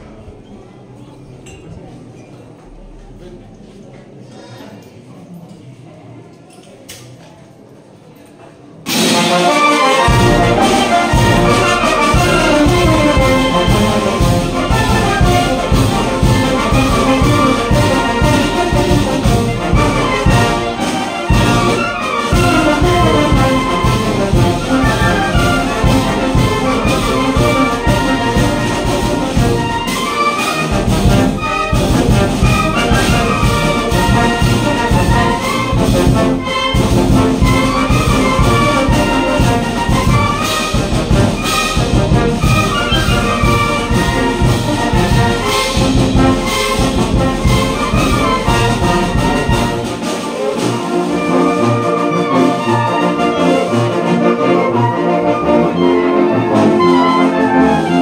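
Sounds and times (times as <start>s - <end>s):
wind band playing: 8.9s - 58.0s.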